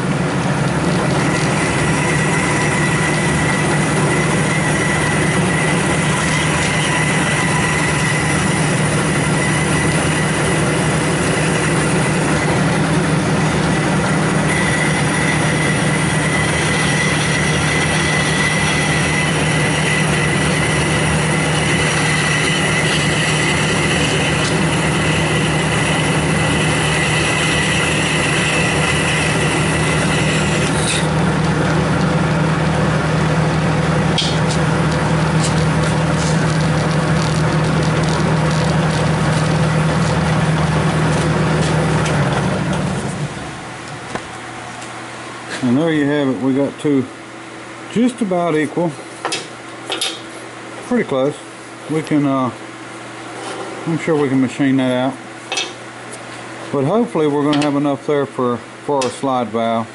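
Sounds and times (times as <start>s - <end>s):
bandsaw cutting metal: 1.1s - 43.2s.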